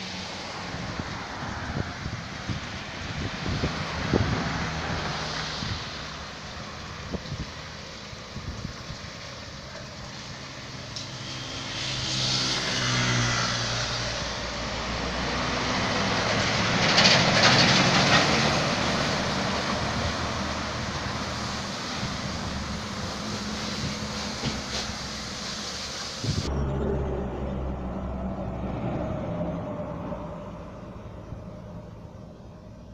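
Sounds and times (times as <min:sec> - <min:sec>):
tyre and wind rush: 0:00.0 - 0:09.5, 0:11.2 - 0:26.7
diesel truck engine: 0:00.0 - 0:32.9.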